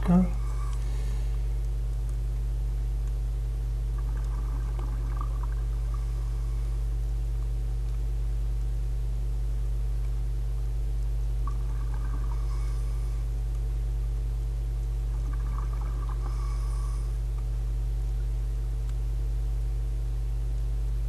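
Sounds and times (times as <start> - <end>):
underwater low rumble: 0.0 - 18.8
faint gurgling: 3.8 - 6.9, 11.4 - 13.3, 15.1 - 17.2.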